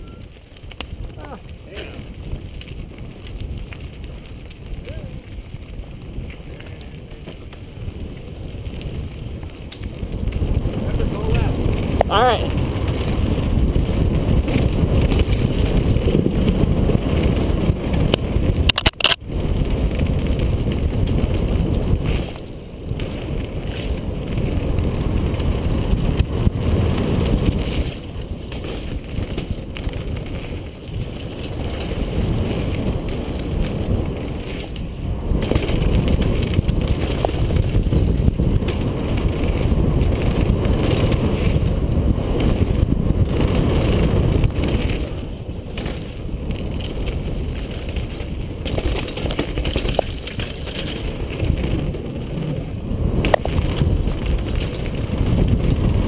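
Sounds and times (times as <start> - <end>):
bike rattling down dirt trail: 0.0 - 56.0
wind buffeting microphone: 0.0 - 56.0
sharp clicks: 18.7 - 19.2.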